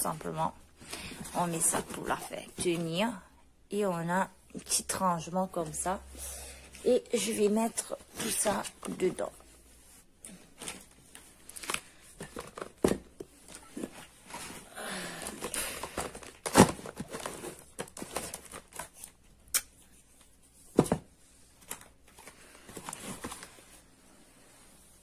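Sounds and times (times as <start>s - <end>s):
packaging rustling and crinkling: 10.4s - 19.2s, 21.6s - 24.0s.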